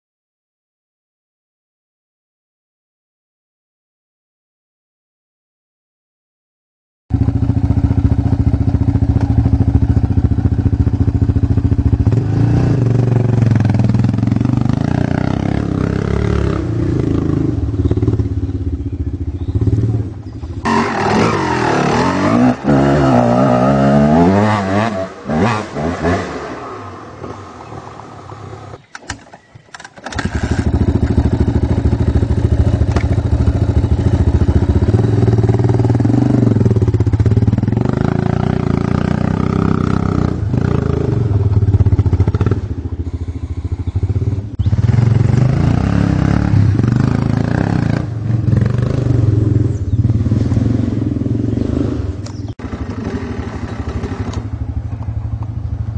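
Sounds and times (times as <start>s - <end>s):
two-stroke dirt bike revving: 7.1s - 28.7s, 30.0s - 55.9s
four-stroke dirt bike engine: 7.1s - 55.9s.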